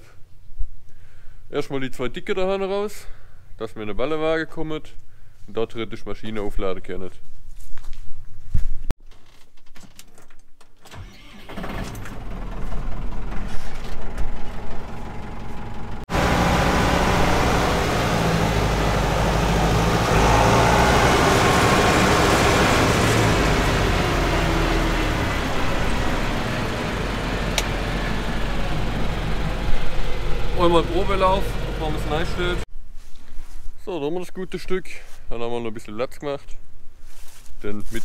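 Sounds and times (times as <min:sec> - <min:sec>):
diesel tractor engine running: 0:10.9 - 0:32.7.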